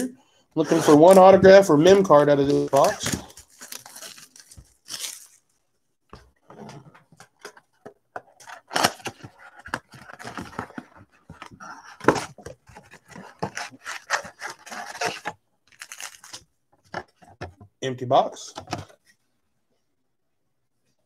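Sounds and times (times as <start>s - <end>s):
cardboard tearing and crinkling: 0.6s - 5.4s, 8.4s - 16.4s.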